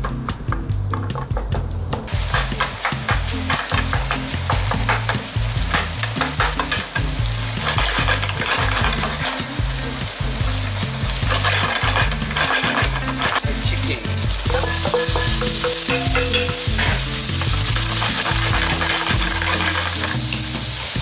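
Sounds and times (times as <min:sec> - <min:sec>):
rice and egg sizzling in pan: 0:02.1 - 0:21.0
wooden spatula scraping pan: 0:02.2 - 0:09.6, 0:11.2 - 0:13.4, 0:16.7 - 0:20.4.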